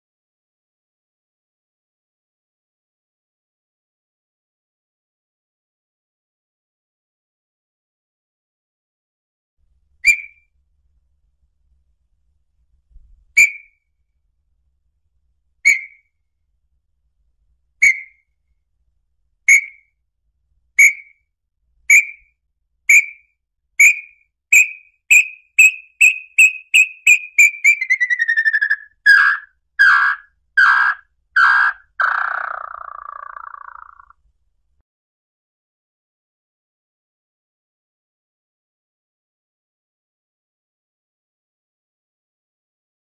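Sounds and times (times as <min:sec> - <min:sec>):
bird whistled song: 0:10.0 - 0:10.5, 0:13.4 - 0:13.9, 0:15.6 - 0:16.1, 0:17.8 - 0:18.3, 0:19.5 - 0:19.9, 0:20.8 - 0:21.2, 0:21.9 - 0:34.1.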